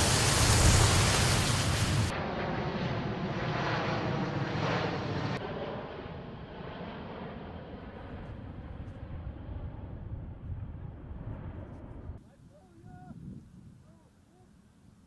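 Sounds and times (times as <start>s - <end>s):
distant jet plane drone: 0.0s - 15.0s
wind buffeting microphone: 8.1s - 14.0s.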